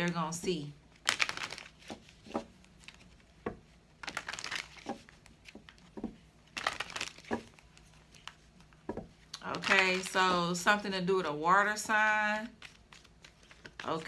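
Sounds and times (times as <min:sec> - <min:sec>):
cards being shuffled: 0:01.0 - 0:10.6, 0:12.4 - 0:14.0.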